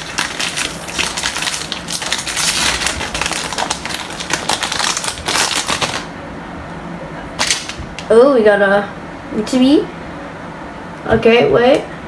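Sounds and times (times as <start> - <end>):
foil wrapper tearing and crinkling: 0.0 - 6.1, 7.4 - 7.8.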